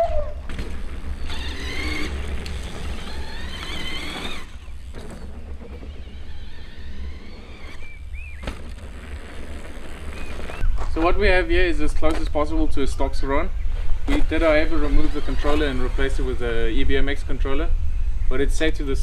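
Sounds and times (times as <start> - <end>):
electric bike motor whining: 0.0 - 10.7, 14.0 - 16.6.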